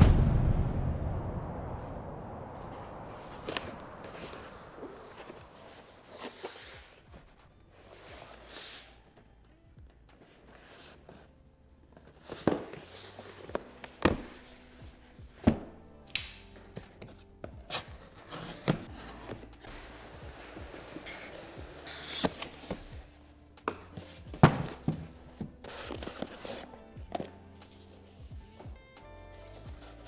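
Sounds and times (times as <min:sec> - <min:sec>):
quiet background music: 0:02.6 - 0:30.0
cardboard scraping: 0:03.6 - 0:08.9, 0:17.7 - 0:28.2
cardboard box knocks and thuds: 0:23.7 - 0:26.4.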